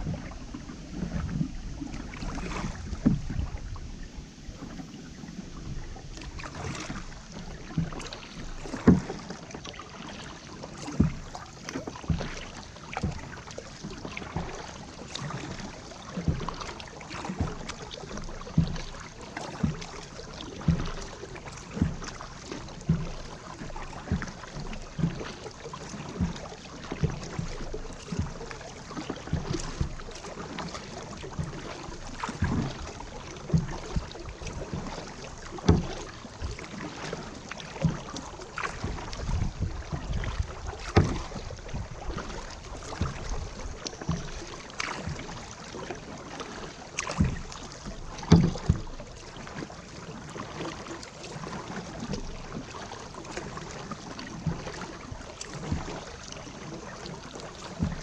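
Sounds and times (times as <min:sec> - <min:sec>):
paddle splashing: 0:00.0 - 0:58.0
water lapping against hull: 0:00.0 - 0:58.0.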